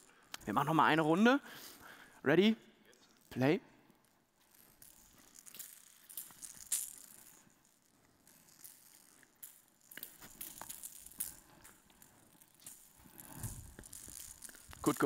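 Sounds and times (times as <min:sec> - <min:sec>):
bell ball jingling: 0:04.4 - 0:15.0.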